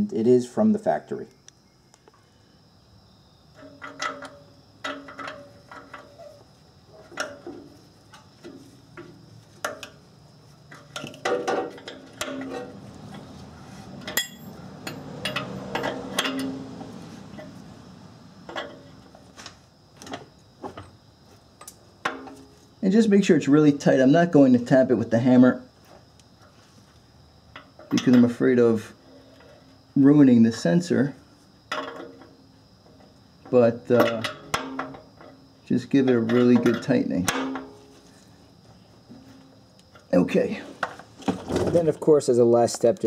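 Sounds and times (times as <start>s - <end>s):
light metallic clicks and scrapes: 10.7s - 17.6s.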